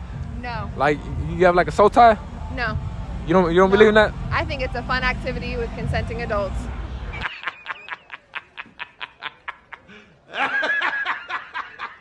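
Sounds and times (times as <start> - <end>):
person laughing: 7.2 - 12.0.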